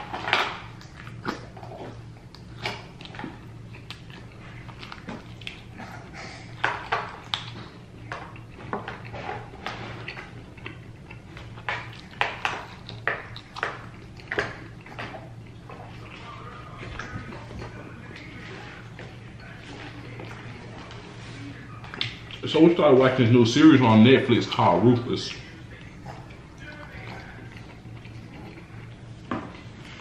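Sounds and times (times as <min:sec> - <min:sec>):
chewing fried chicken: 0:00.0 - 0:30.0
steady low hum: 0:00.0 - 0:30.0.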